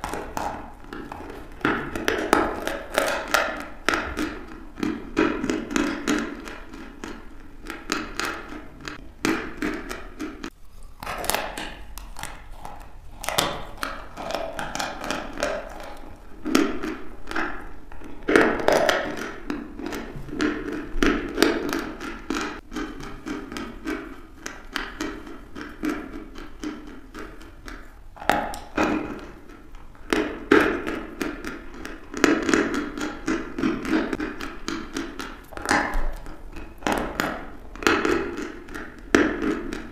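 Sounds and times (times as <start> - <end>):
chalk crunching while chewed: 0.0 - 39.9.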